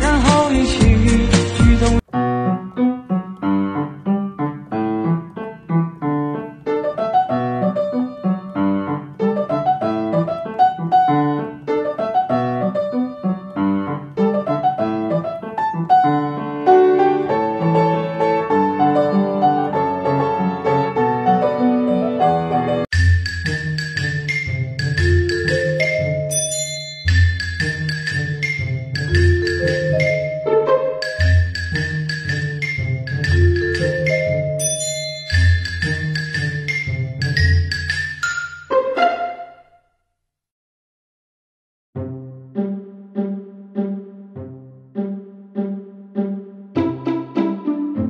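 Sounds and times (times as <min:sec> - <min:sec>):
solo piano music: 0:02.0 - 0:22.9, 0:24.3 - 0:27.4, 0:28.3 - 0:37.6.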